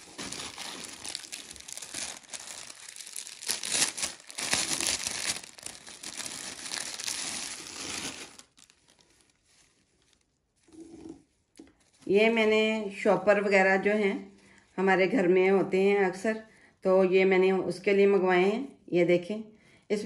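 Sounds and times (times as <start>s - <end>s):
plastic packaging crinkling: 0.0s - 10.8s.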